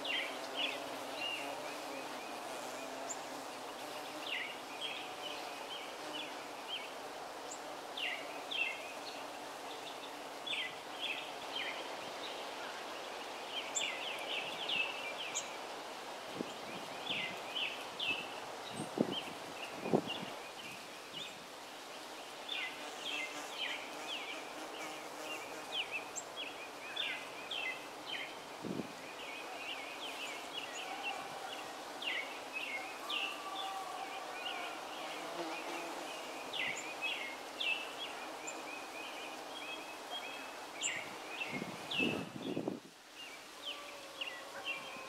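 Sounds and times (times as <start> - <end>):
bees humming: 0.1 - 5.4.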